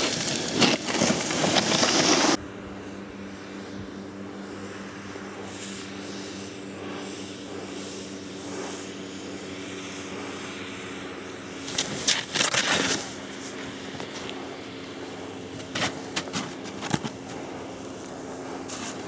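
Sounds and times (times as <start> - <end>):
snowboard scraping through snow: 0.0 - 2.4, 11.6 - 14.3, 15.4 - 19.0.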